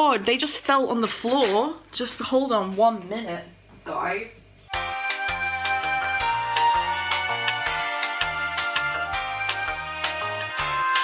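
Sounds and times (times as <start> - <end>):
instrumental music with bass and beat: 4.7 - 11.0.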